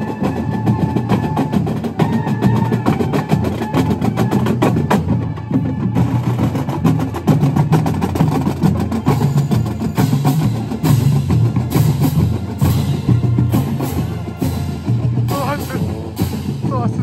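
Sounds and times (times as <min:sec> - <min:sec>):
drumline beating: 0:00.0 - 0:17.0
marching band playing: 0:00.0 - 0:17.0
low brass notes: 0:09.0 - 0:16.6.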